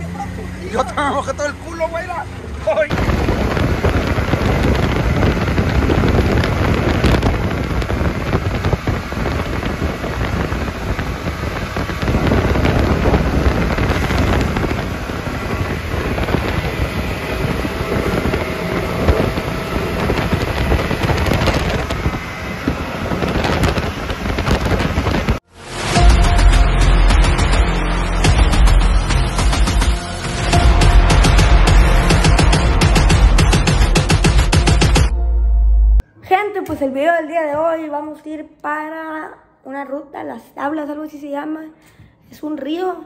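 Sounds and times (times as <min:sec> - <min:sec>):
utv engine rumbling: 0:00.0 - 0:35.1
wind buffeting microphone: 0:02.9 - 0:25.4.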